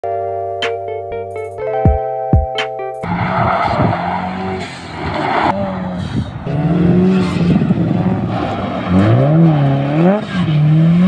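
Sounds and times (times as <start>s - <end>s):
gravel and tyres hissing: 3.0s - 11.0s
rally car engines revving: 3.0s - 11.0s.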